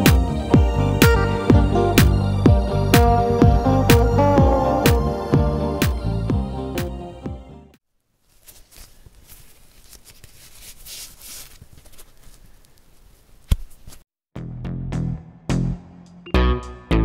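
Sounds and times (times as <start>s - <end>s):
crackling rustling noise: 8.0s - 14.1s.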